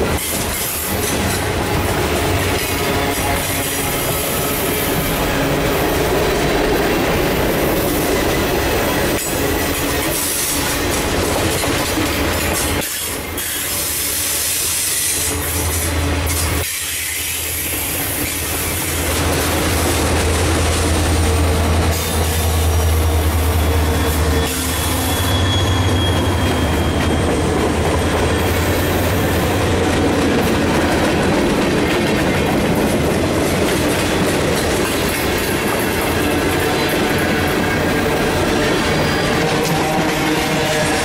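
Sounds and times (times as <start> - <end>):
diesel locomotive hum: 0.0 - 41.0
train cars rail clatter: 0.0 - 41.0
wheel squeal: 22.0 - 29.3.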